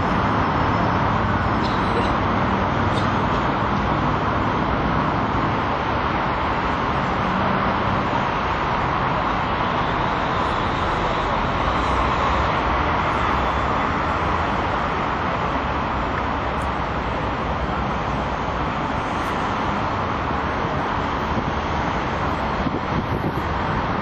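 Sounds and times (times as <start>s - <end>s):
city street traffic roar: 0.0s - 24.0s.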